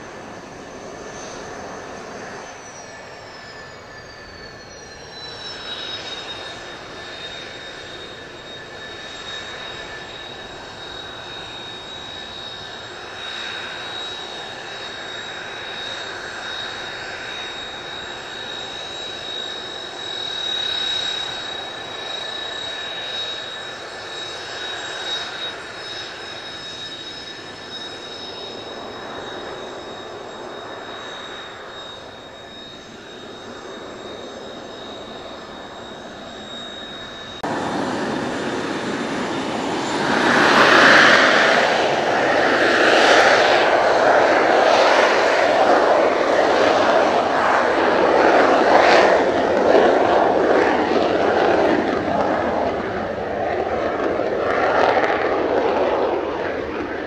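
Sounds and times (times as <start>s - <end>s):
jet engines whining: 0.0s - 57.0s.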